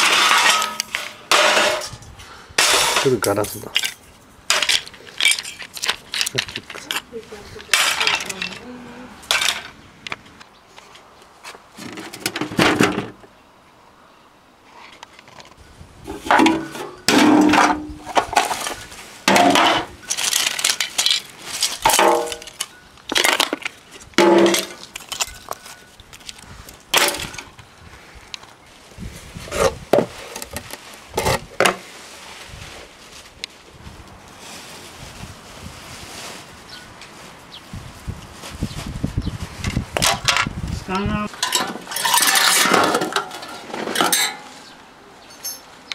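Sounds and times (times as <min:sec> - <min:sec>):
plastic and metal parts clattering: 0:00.0 - 0:02.0, 0:02.6 - 0:08.7, 0:09.3 - 0:10.2, 0:11.8 - 0:13.2, 0:15.0 - 0:27.6, 0:29.5 - 0:31.8, 0:39.6 - 0:44.5.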